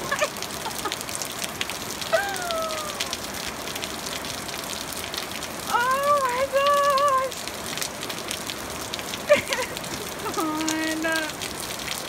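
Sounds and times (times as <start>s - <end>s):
heavy rain pattering: 0.0s - 12.0s
falling vocal cry: 2.1s - 3.2s.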